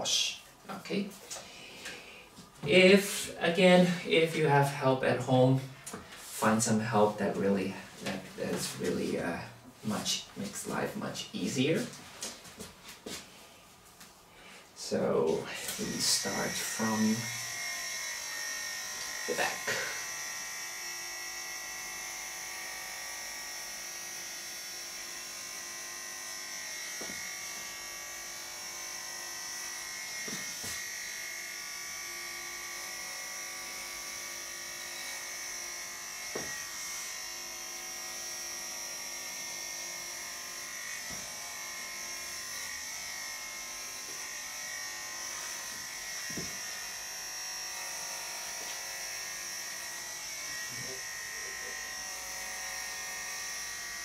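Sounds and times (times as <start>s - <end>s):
electric clippers buzzing: 15.2s - 54.0s.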